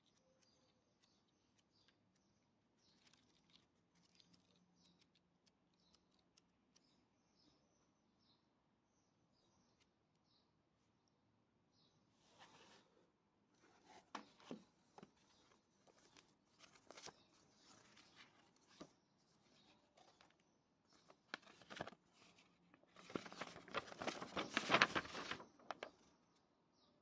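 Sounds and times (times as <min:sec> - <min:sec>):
paper crackling: 0:02.8 - 0:06.2, 0:13.8 - 0:26.1
paper rustling and crinkling: 0:02.9 - 0:05.2, 0:13.6 - 0:26.1.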